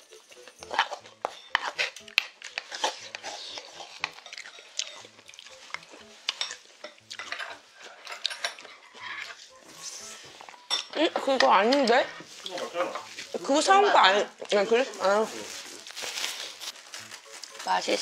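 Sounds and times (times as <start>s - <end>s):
close chewing: 0.1s - 10.6s
wooden spoon scraping wooden bowl: 0.7s - 2.0s, 2.6s - 4.5s.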